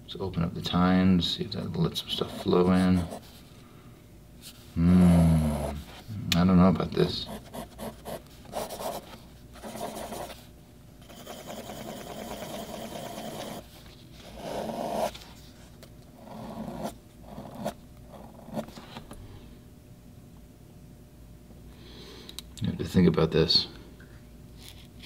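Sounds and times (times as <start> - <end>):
pen nib scratching on paper: 7.3 - 10.4, 11.0 - 13.6.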